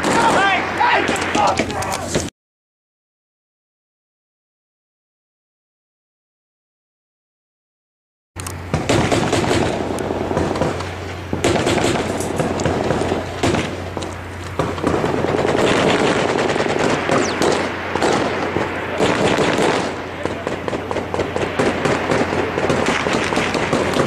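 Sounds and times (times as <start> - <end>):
automatic gunfire: 0.0 - 1.6, 8.7 - 10.8, 11.4 - 13.8, 14.6 - 24.0
steady low hum: 8.4 - 24.0.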